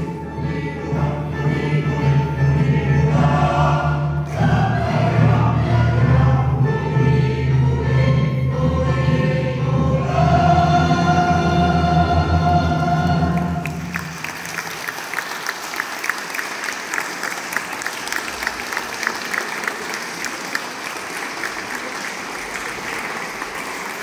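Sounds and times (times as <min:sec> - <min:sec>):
choir holding a chord: 0:00.0 - 0:14.2
audience applause: 0:13.4 - 0:24.0.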